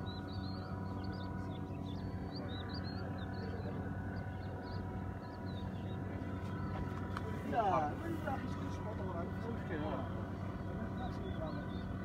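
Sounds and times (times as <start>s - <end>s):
engine humming: 0.0s - 12.0s
small birds chirping: 0.0s - 12.0s.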